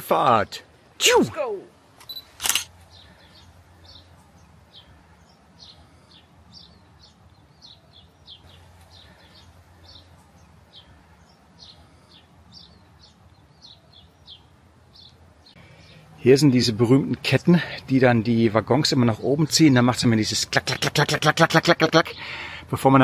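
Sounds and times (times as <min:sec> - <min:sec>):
bird chirping: 0:01.6 - 0:23.0.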